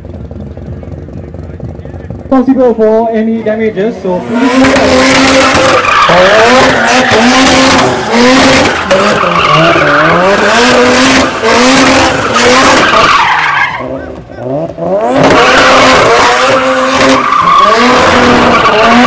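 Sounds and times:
rotary engine revving: 0.0 - 19.0
tyres screeching: 4.2 - 19.0.

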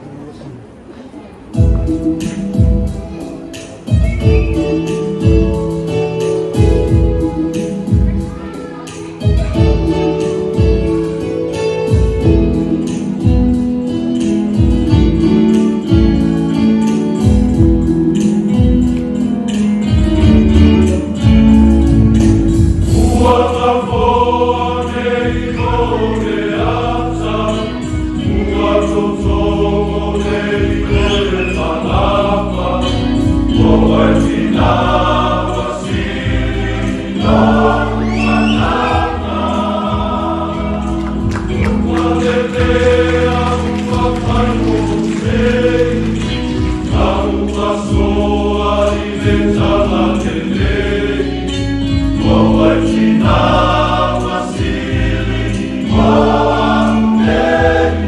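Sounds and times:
instrumental accompaniment: 0.7 - 58.0
men's choir singing: 20.2 - 58.0.

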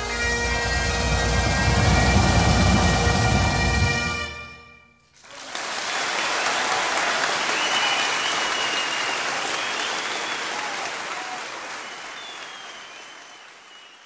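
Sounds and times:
bagpipes playing: 0.0 - 5.0
audience applause: 5.2 - 14.0
high whistle: 7.4 - 14.0.

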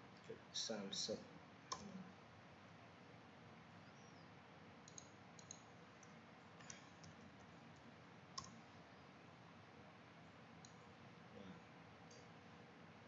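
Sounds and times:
low steady hiss: 0.0 - 13.0
computer mouse and keyboard clicks: 1.7 - 2.0, 4.8 - 8.6, 10.6 - 10.8.

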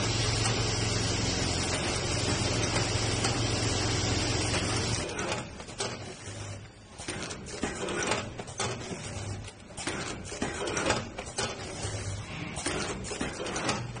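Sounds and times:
machine clacking and knocking: 4.4 - 14.0.

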